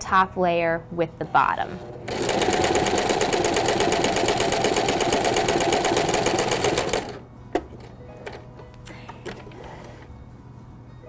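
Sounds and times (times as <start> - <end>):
sewing machine stitching: 2.0 - 7.2.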